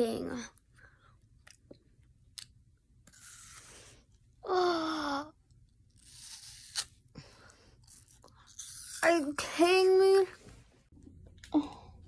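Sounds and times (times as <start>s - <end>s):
crunching bite of apple: 2.3s - 3.7s.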